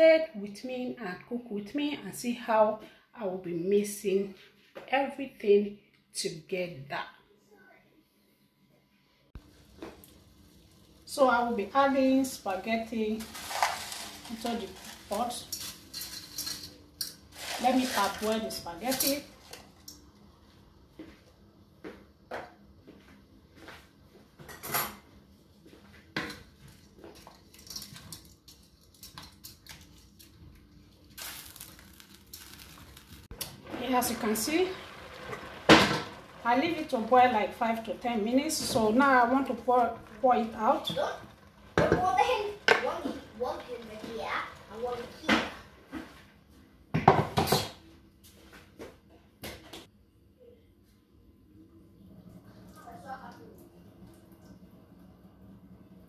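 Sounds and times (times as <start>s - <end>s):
metal cookware clanking: 13.2s - 19.9s.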